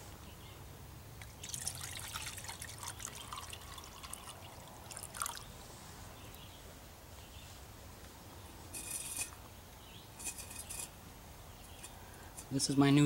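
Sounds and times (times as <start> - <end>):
water pouring into metal cup: 1.2 - 5.5.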